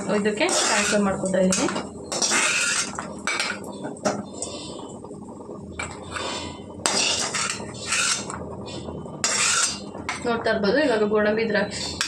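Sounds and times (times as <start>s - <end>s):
metal spoon scraping metal pan: 0.4s - 3.6s, 5.8s - 11.1s.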